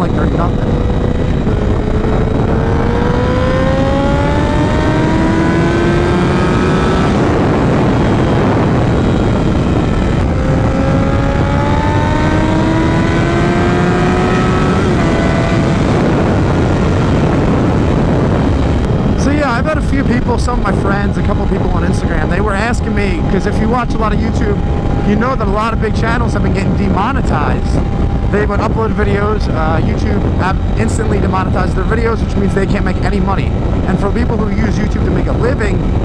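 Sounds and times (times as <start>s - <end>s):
heavy wind noise: 0.0s - 36.0s
motorcycle engine accelerating: 0.0s - 36.0s.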